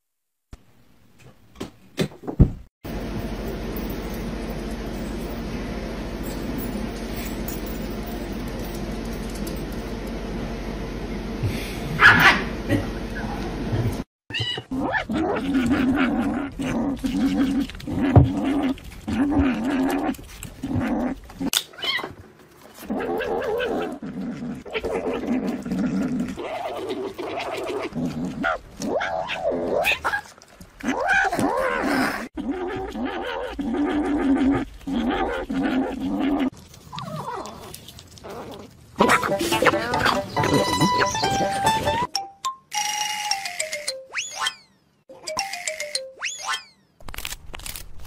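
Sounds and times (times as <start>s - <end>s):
cat growling: 14.6s - 22.0s, 22.8s - 41.2s.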